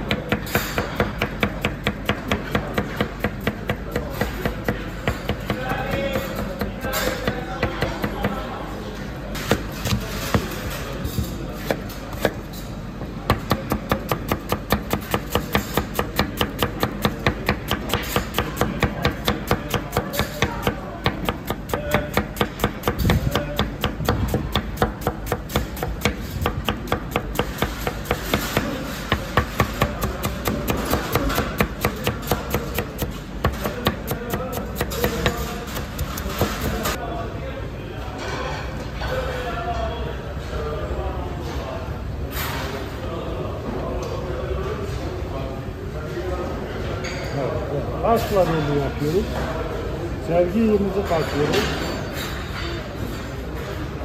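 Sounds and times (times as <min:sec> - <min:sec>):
knife chopping on cutting board: 0:13.3 - 0:36.9.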